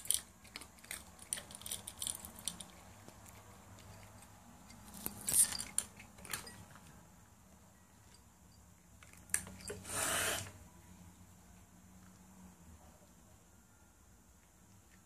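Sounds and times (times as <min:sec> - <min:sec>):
cats crunching dry food: 0:00.0 - 0:07.0.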